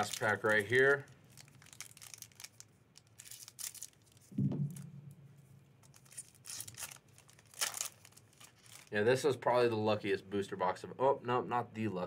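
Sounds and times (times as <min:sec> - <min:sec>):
foil wrapper crinkling and tearing: 0:00.0 - 0:04.3, 0:05.8 - 0:09.1
short low thump: 0:04.3 - 0:05.3.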